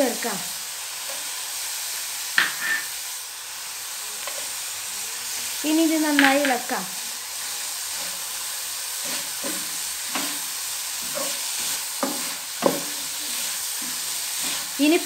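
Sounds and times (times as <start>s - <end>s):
frying sizzle: 0.0s - 15.0s
spatula scraping a pan: 2.4s - 3.0s, 7.3s - 15.0s.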